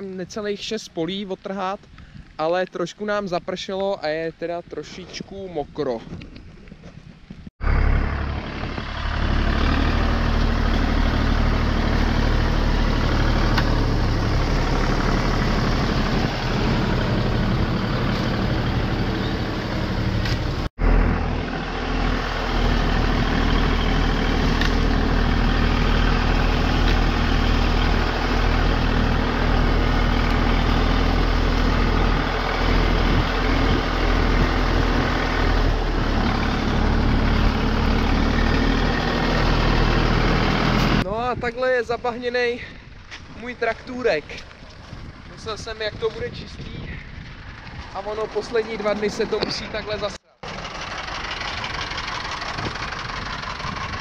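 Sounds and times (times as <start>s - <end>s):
tractor diesel engine running: 7.6s - 41.2s, 44.5s - 54.0s.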